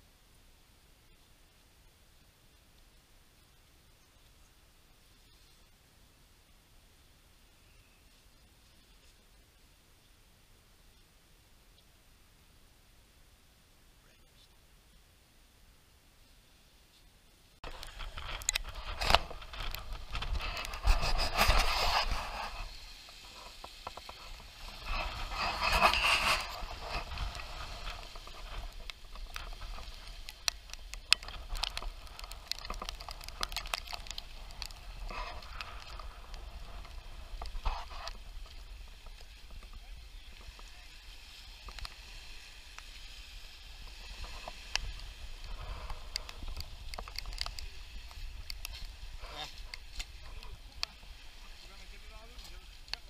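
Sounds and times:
small waves washing onto stony shore: 17.6 - 53.0
wind rumbling on microphone: 17.6 - 53.0.

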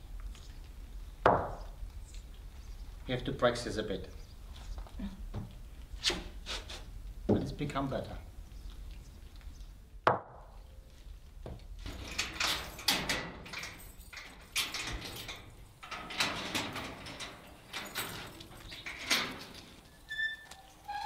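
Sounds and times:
wire and latch rattling and scraping: 11.4 - 21.0.

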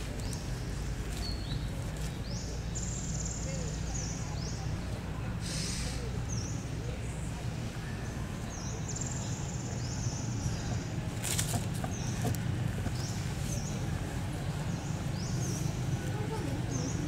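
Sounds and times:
rustling: 11.1 - 13.6.

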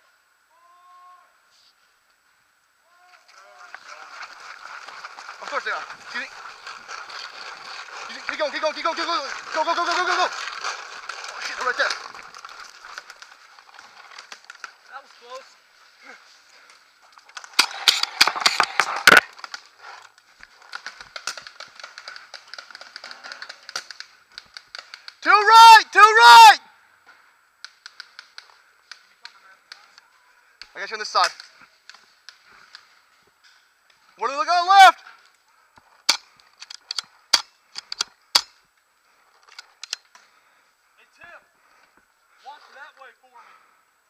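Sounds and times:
paintball gun cracks: 17.3 - 19.7, 20.7 - 25.2, 27.6 - 30.0, 36.0 - 38.6, 39.4 - 40.3.

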